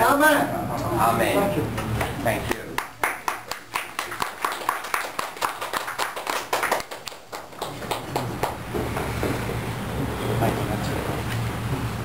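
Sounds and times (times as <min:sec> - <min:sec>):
people clapping: 0:01.7 - 0:09.6.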